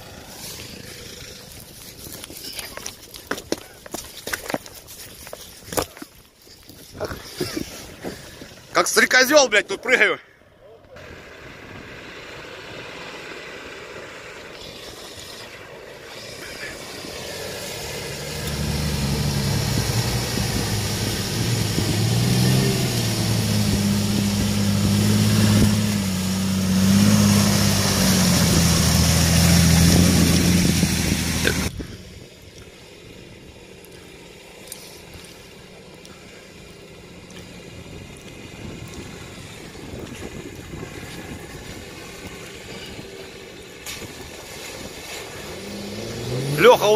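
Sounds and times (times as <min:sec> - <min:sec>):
water splashing around wheels: 0:00.0 - 0:09.2, 0:11.0 - 0:46.9
off-road vehicle engine working hard: 0:00.0 - 0:46.9
wind noise: 0:19.3 - 0:26.1, 0:26.8 - 0:32.3, 0:37.8 - 0:45.6.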